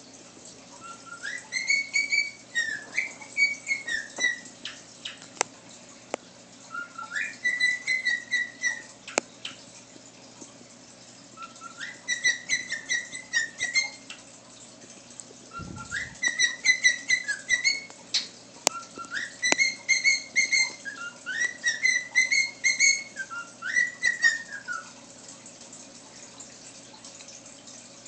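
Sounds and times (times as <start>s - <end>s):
cockatiel whistling: 0.8s - 4.8s, 6.7s - 8.9s, 11.4s - 14.0s, 15.5s - 24.9s.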